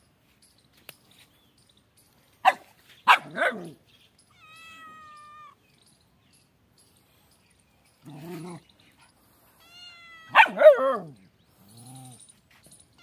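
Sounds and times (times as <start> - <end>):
cat meowing and yowling: 4.3 - 5.6, 9.6 - 11.1.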